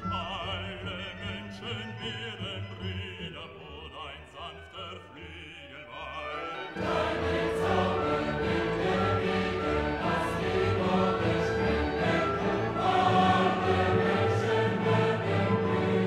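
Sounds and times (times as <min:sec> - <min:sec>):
classical music: 0:00.0 - 0:16.0
operatic singing voice: 0:00.0 - 0:16.0
choir singing: 0:05.7 - 0:16.0.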